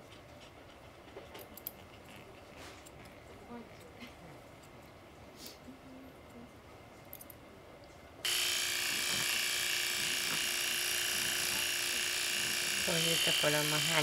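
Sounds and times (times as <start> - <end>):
electric clippers buzzing: 8.2 - 14.0.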